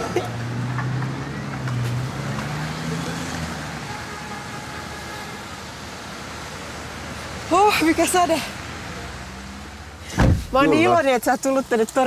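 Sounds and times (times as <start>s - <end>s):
car engine passing: 0.0s - 3.9s, 5.6s - 11.2s
rain and wet tyres hiss: 0.0s - 12.0s.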